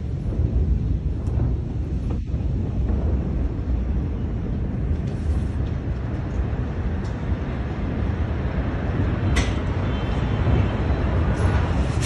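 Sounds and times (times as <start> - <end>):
low rumble: 0.0 - 9.3
wind buffeting microphone: 0.0 - 12.0.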